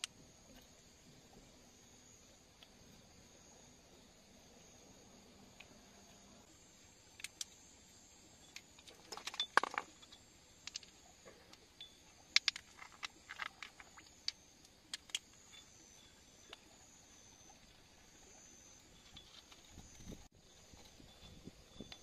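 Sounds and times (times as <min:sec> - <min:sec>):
steel tools clinking on rock: 0:08.5 - 0:10.9.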